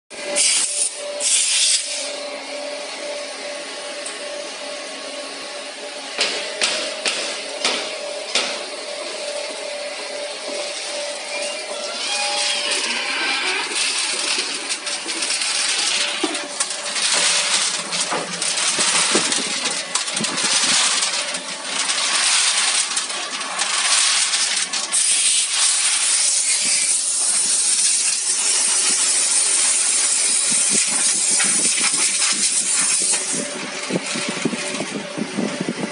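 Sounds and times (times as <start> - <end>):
metal screws clinking in drum: 13.7 - 26.5.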